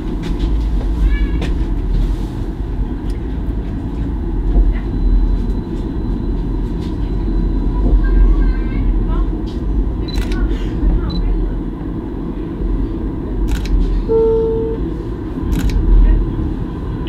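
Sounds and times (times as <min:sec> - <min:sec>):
tram wheels rumbling: 0:00.0 - 0:17.0.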